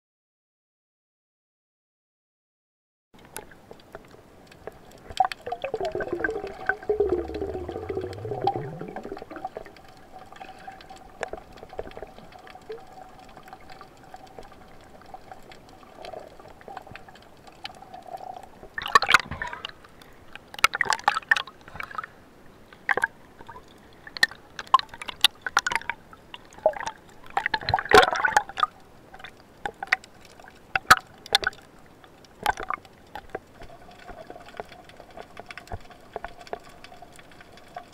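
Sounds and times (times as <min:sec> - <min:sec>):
underwater sloshing and gurgling: 0:03.3 - 0:37.9
water bubbling bursts: 0:05.2 - 0:11.5, 0:24.7 - 0:28.7.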